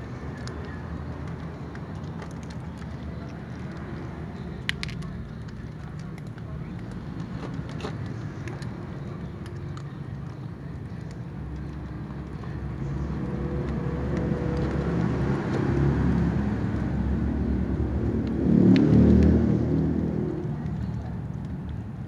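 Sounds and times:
vehicle engine passing: 11.4s - 21.3s.

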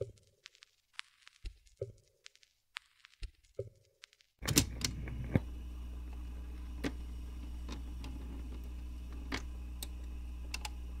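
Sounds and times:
low steady hum: 4.4s - 11.0s.

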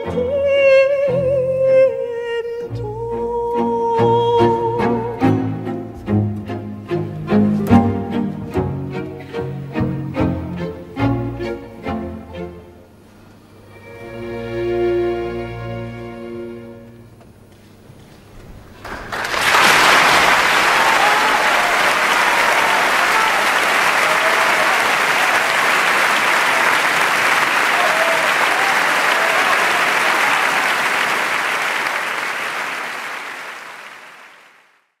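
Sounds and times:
audience applauding: 18.7s - 35.0s.

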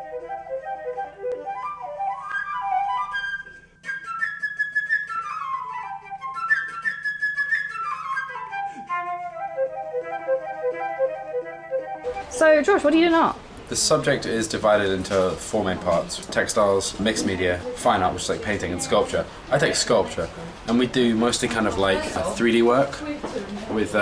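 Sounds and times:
fast bright instrumental melody: 9.4s - 13.1s.

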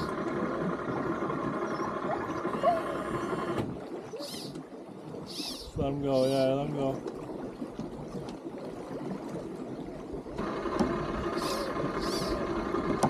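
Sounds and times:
outboard motor humming: 0.0s - 13.0s
water hissing: 11.2s - 12.5s.

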